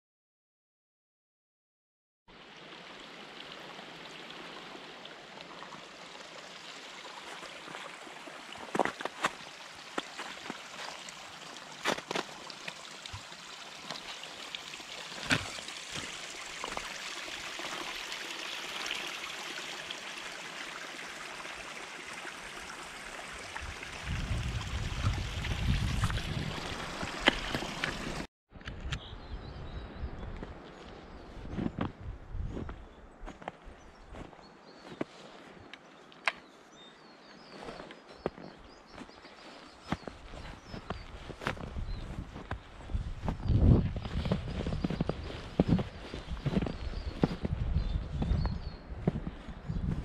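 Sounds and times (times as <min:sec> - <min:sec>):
stream trickling over rocks: 0:02.3 - 0:28.3.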